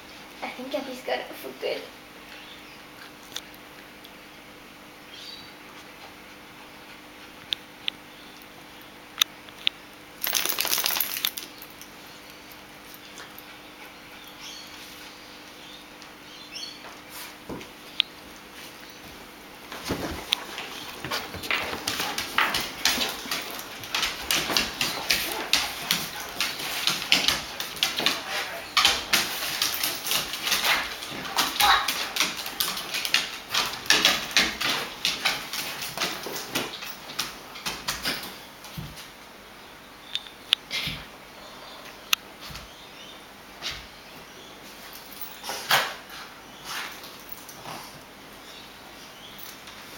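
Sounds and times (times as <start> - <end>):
dog claws scrabbling on floorboards: 10.2 - 11.8, 19.0 - 39.1
dogs scuffling: 10.2 - 11.9, 16.3 - 39.2.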